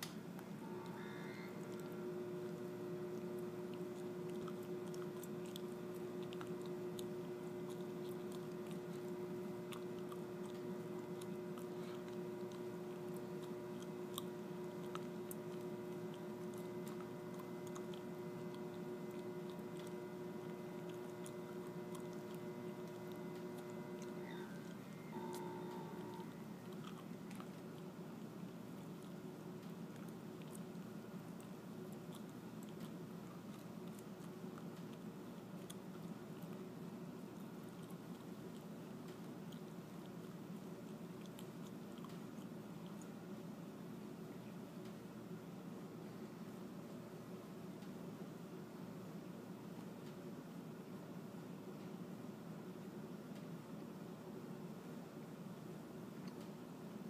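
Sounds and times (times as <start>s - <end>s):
small electric motor humming: 0.6s - 26.4s.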